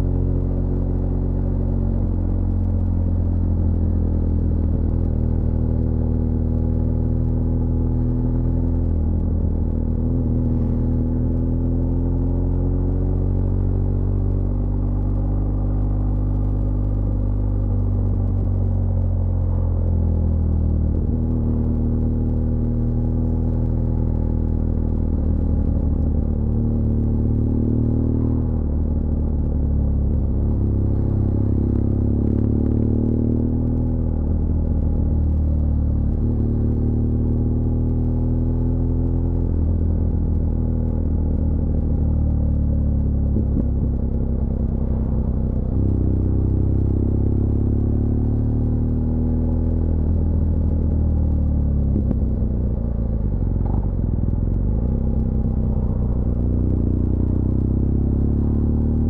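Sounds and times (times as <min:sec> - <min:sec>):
motorcycle engine rumbling: 0:49.4 - 0:59.0.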